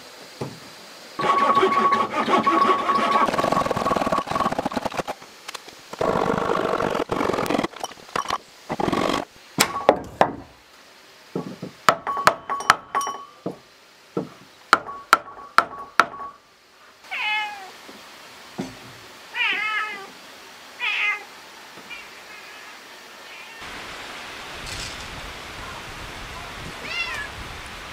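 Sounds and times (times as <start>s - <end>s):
hammer knocking on wooden block: 11.4s - 13.6s, 14.2s - 16.4s
cat meowing: 17.1s - 17.8s, 20.8s - 21.3s, 21.9s - 23.6s, 26.8s - 27.3s.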